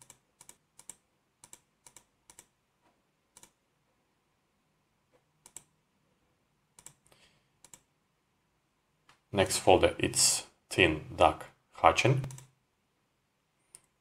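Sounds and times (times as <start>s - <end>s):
computer mouse clicks: 0.0s - 2.6s, 3.3s - 3.6s, 5.2s - 5.7s, 6.7s - 7.9s, 12.2s - 12.6s, 13.7s - 14.0s.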